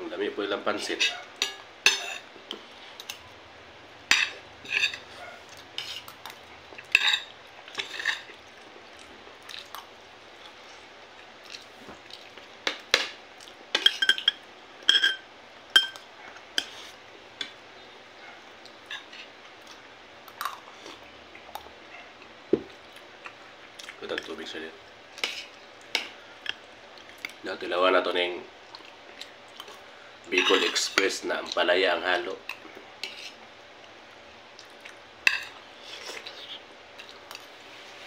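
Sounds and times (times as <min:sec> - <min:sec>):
cutlery clinking on plate and bowl: 0:01.0 - 0:02.2, 0:13.8 - 0:15.2, 0:15.8 - 0:16.0, 0:30.4 - 0:31.1.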